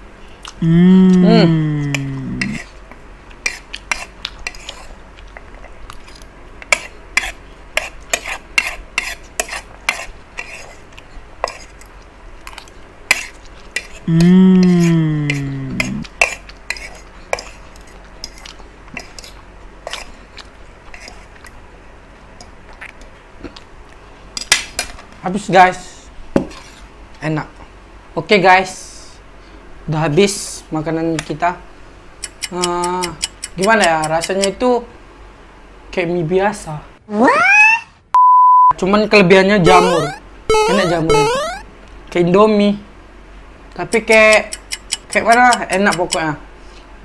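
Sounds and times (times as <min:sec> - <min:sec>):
cutlery scraping a ceramic plate: 0:06.6 - 0:10.8
drawn-out sound falling in pitch: 0:39.7 - 0:41.6.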